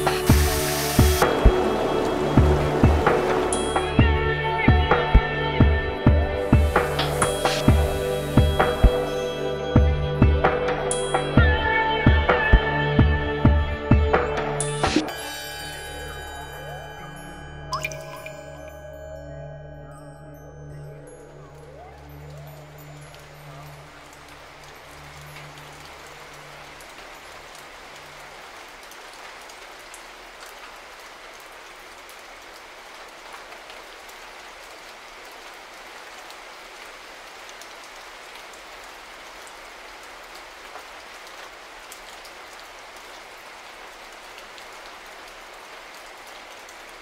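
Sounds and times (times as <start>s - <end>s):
falling water hiss: 0.0s - 9.7s.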